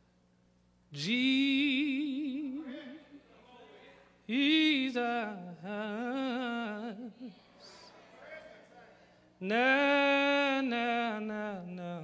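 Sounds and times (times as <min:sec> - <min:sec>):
man singing unaccompanied: 0:09.4 - 0:12.0.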